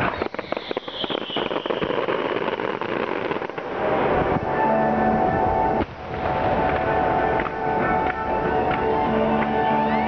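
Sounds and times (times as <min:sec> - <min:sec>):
falling firework whistle: 0:00.0 - 0:03.6
firework crackling: 0:00.0 - 0:10.0
fireworks bangs and cracks: 0:00.0 - 0:10.0.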